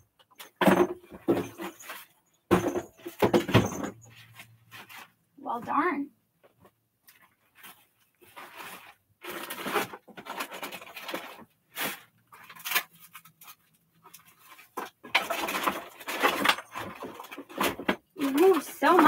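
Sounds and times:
plastic packaging rustling: 7.0s - 19.0s.

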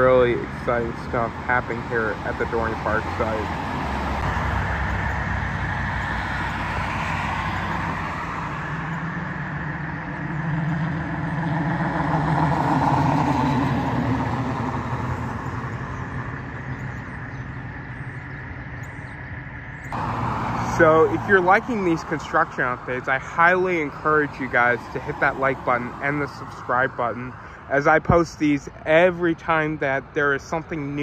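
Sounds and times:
passing cars: 0.0s - 31.0s.

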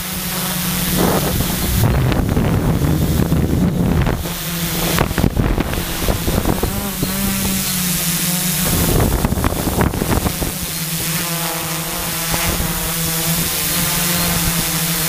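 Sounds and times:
wind buffeting microphone: 0.0s - 11.2s
drone motors humming: 0.0s - 15.0s.

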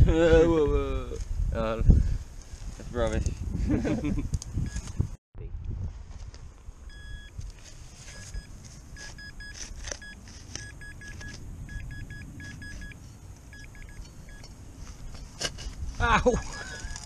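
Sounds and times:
metal detector beeping: 6.9s - 7.4s, 8.0s - 14.6s, 16.8s - 17.0s
low rumble: 10.0s - 16.2s.

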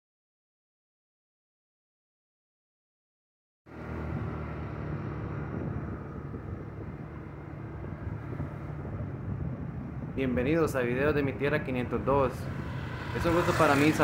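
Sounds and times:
road noise: 3.7s - 14.0s
vehicle engine hum: 3.7s - 14.0s.

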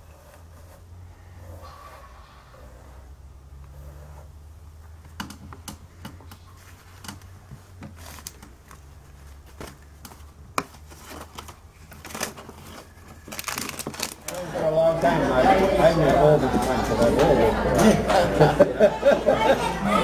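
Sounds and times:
steady low hum: 0.0s - 13.3s.

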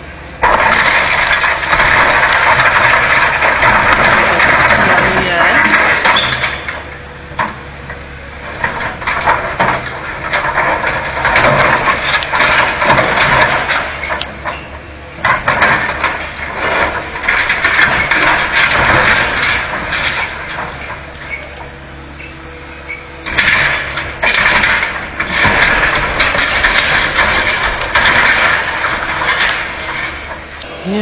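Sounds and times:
excavator engine running: 0.0s - 31.0s
rubble knocking and clattering: 0.4s - 21.8s, 22.9s - 30.6s.

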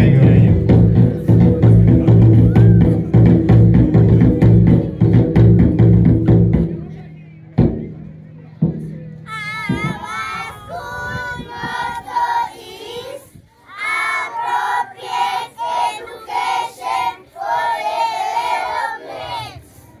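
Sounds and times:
children singing in unison: 9.3s - 19.8s.

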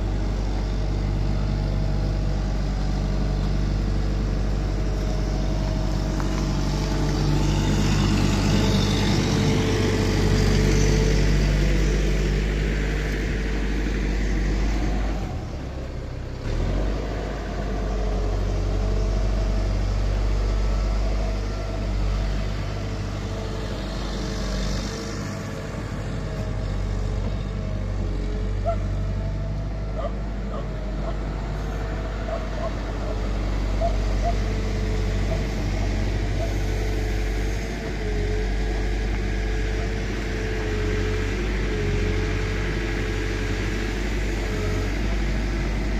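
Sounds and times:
excavator diesel engine running: 0.0s - 45.9s.

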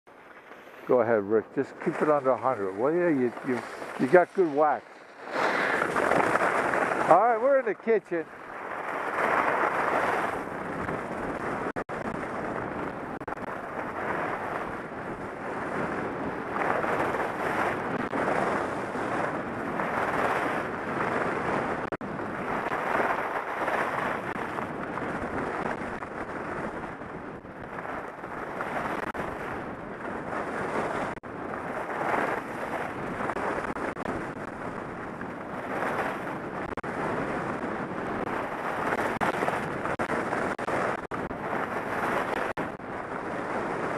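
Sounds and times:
wind rushing over microphone: 0.2s - 43.9s
skis carving on snow: 0.4s - 8.3s, 8.9s - 12.8s, 15.5s - 19.4s.

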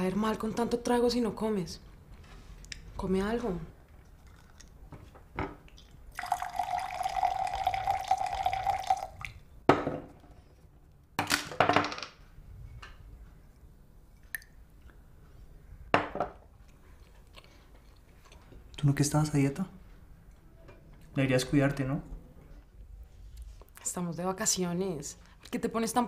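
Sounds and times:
liquid pouring into glass: 5.8s - 9.4s
bottle knocking on table: 9.7s - 10.1s.

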